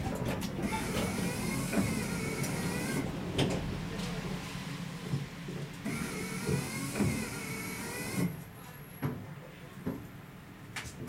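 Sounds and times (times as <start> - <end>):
knocks and clunks: 0.0 - 4.2, 5.0 - 7.4.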